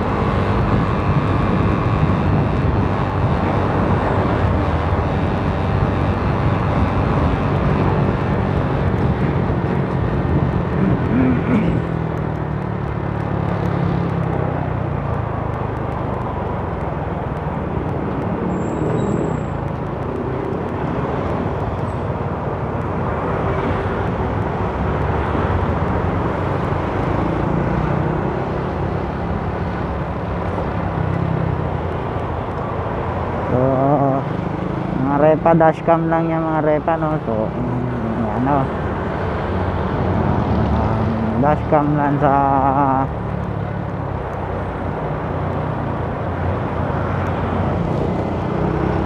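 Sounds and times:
wind rumbling on microphone: 0.0s - 35.7s
road noise: 0.0s - 49.0s.

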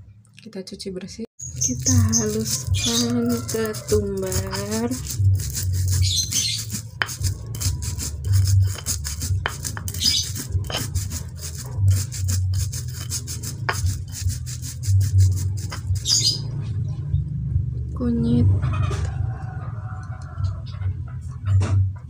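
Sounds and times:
stone pestle pounding seeds: 1.4s - 16.4s.

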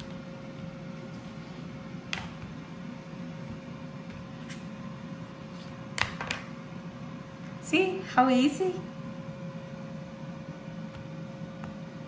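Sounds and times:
air fryer fan hum: 0.0s - 12.0s.

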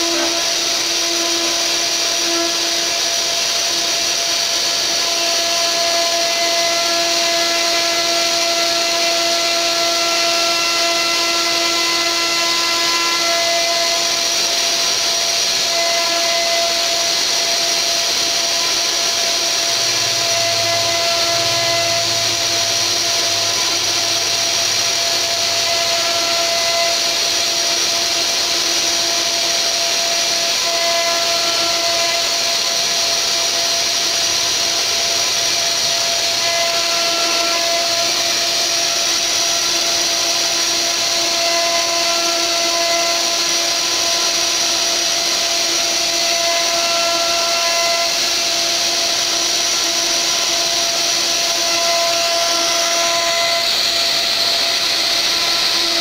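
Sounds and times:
router bit cutting wood: 0.0s - 56.0s
router spindle high whine: 0.0s - 56.0s
machine humming tones: 15.6s - 42.0s.

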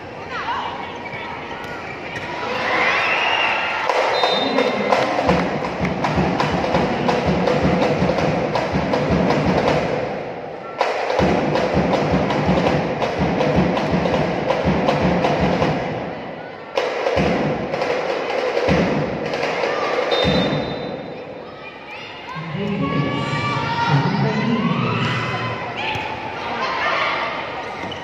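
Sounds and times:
crowd noise: 0.0s - 28.0s
rhythmic percussion music: 3.8s - 16.1s, 16.8s - 20.6s.

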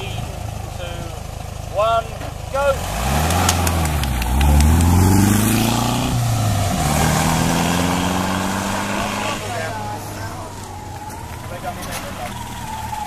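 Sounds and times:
car engine revving: 0.0s - 13.0s
sharp clicks: 3.1s - 5.2s.

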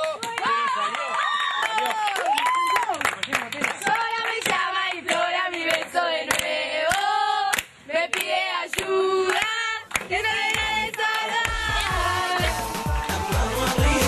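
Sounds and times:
hands clapping: 0.0s - 14.0s
girls singing together: 3.8s - 14.0s.

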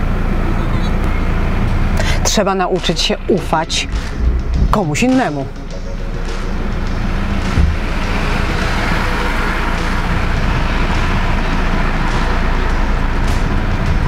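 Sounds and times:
car engine and tyre noise: 0.0s - 14.0s
short low thump: 7.4s - 8.1s.

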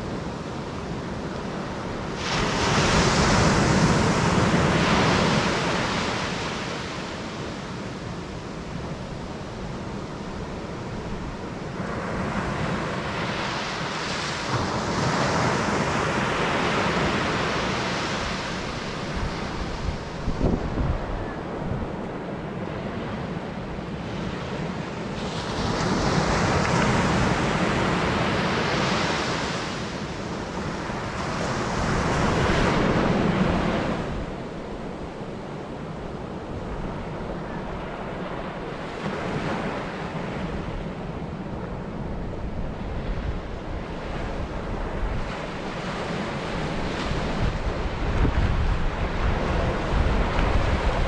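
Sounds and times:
waves washing up a sandy beach: 0.0s - 51.0s
wind buffeting microphone: 0.0s - 51.0s.

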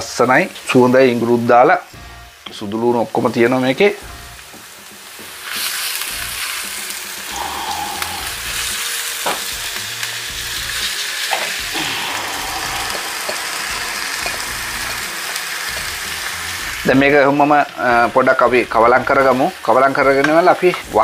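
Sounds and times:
meat sizzling in hot oil: 0.0s - 21.0s
utensils knocking on pan: 4.0s - 6.4s, 9.2s - 9.8s, 12.8s - 16.3s, 20.0s - 21.0s.

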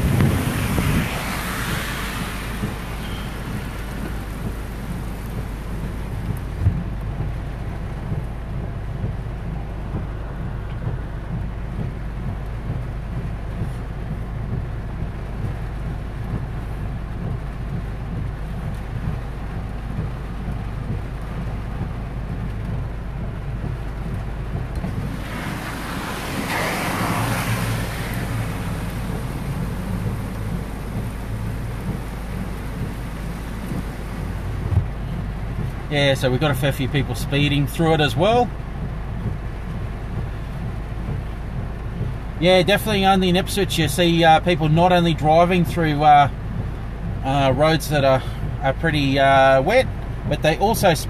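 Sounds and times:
car driving through floodwater: 0.0s - 51.0s
heavy rain drumming on car roof: 0.0s - 51.0s.

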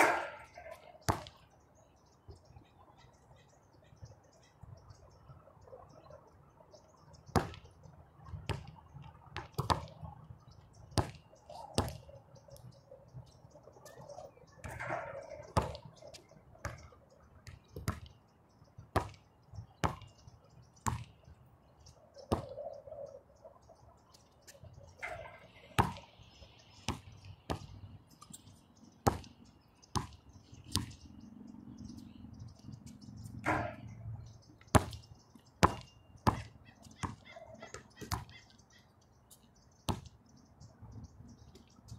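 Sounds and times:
basketball bouncing on hardcourt: 35.6s - 37.2s.

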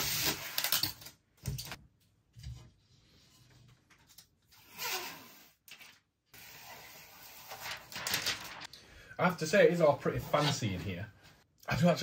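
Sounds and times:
plastic film peeling and crinkling: 7.4s - 8.7s.

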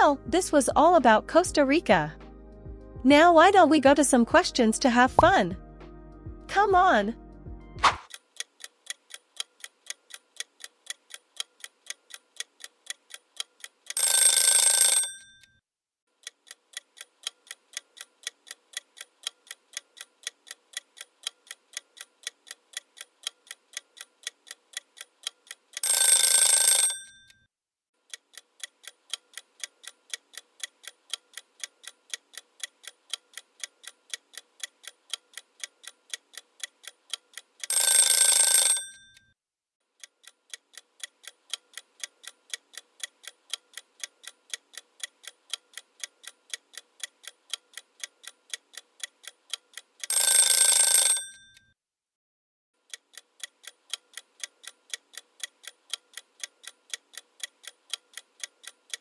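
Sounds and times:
clock ticking: 8.1s - 15.2s, 16.2s - 27.3s, 28.0s - 39.2s, 40.0s - 51.6s, 52.8s - 59.0s
alarm clock bell ringing: 14.0s - 15.4s, 25.8s - 27.3s, 37.7s - 39.2s, 50.1s - 51.6s.

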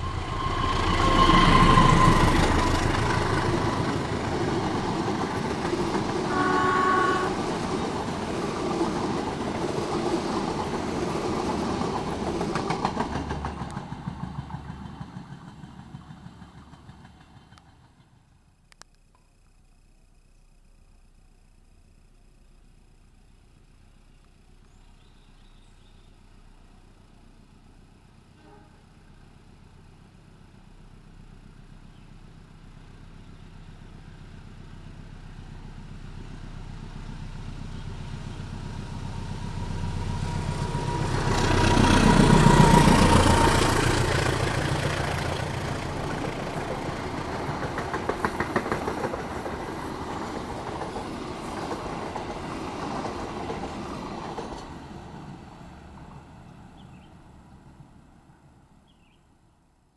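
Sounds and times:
train wheels clacking on rails: 0.0s - 18.2s, 39.4s - 55.4s
diesel locomotive engine: 0.0s - 59.6s.

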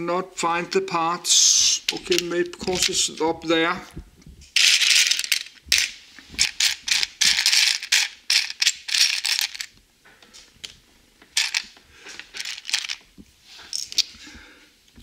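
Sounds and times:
plastic bricks rattling: 1.9s - 3.2s, 4.6s - 9.7s, 11.4s - 14.1s.

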